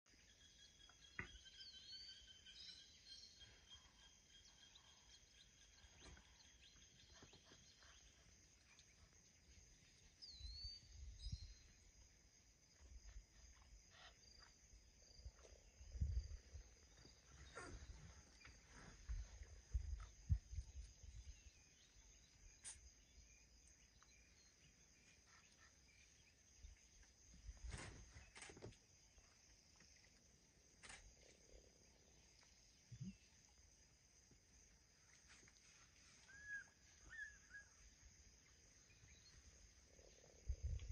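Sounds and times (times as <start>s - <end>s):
bird chirp: 0.1s - 12.0s, 12.8s - 30.2s, 35.3s - 40.9s
insects chirring: 0.2s - 40.9s.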